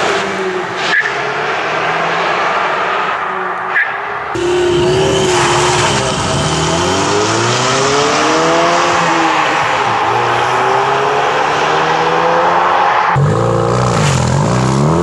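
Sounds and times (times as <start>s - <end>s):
car engine accelerating: 4.4s - 15.0s.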